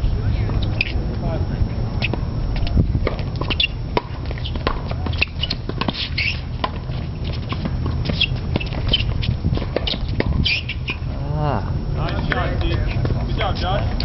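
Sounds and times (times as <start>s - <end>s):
racket hitting ball: 3.0s - 10.6s
sneaker squeaks on court: 3.4s - 11.1s.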